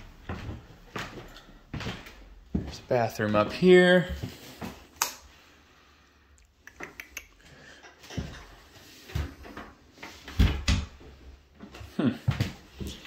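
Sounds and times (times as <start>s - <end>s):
boot footsteps on wooden floorboards: 0.0s - 4.8s.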